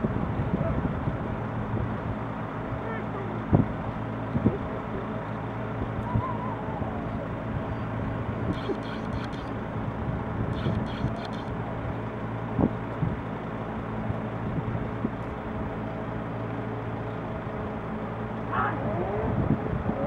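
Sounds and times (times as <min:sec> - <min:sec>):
outdoor noise: 0:00.0 - 0:20.0
motor humming: 0:06.0 - 0:12.2.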